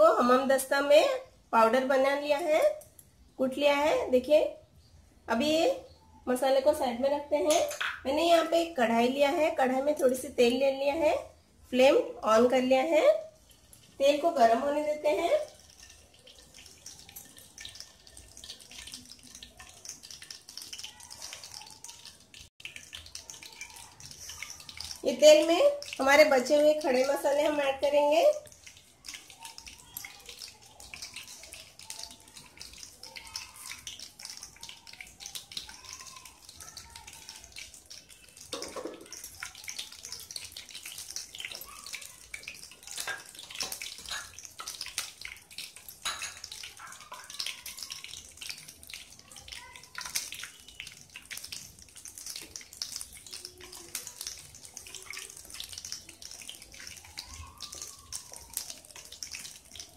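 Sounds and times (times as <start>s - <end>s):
spices sizzling in hot oil: 0.0s - 59.9s
wooden spatula stirring: 13.3s - 59.9s.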